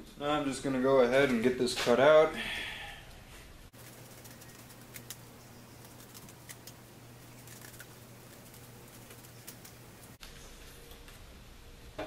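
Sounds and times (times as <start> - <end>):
low steady hum: 2.4 - 12.0.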